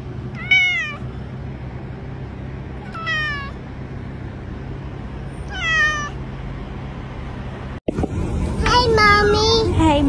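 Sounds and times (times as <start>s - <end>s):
cat meowing: 0.3s - 1.1s, 2.8s - 3.6s, 5.4s - 6.2s.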